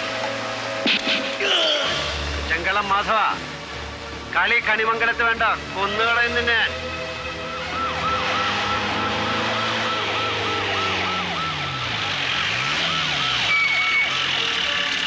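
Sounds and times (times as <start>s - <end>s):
police siren yelping: 7.1s - 15.0s.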